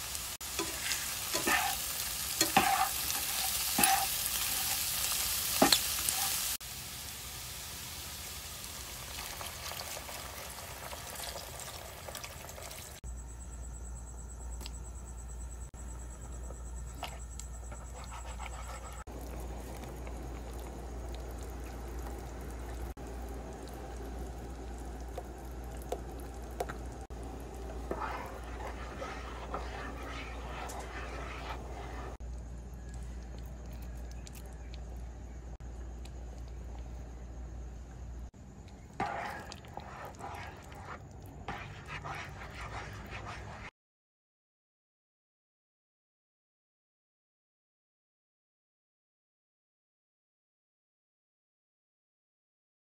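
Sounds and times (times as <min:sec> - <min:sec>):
sauce bubbling: 0:00.0 - 0:13.0, 0:16.8 - 0:43.7.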